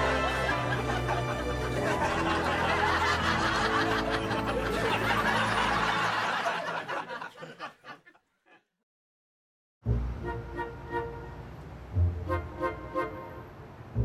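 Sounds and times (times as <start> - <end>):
light background music: 0.0 - 5.8, 9.9 - 14.0
group laughter: 0.0 - 8.8.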